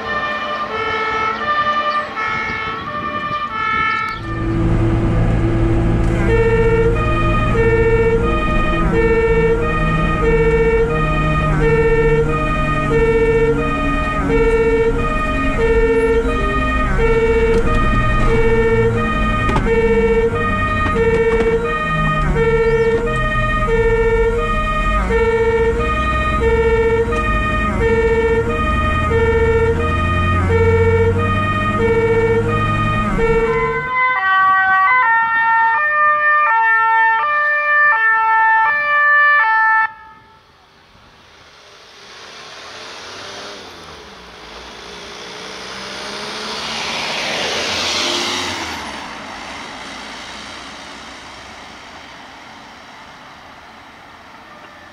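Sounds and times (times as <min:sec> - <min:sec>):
two-tone fire engine siren: 0:00.0 - 0:40.7, 0:43.9 - 0:53.2, 0:54.1 - 0:54.9
distant two-tone siren: 0:00.0 - 0:54.9
engine and road noise: 0:00.0 - 0:54.9.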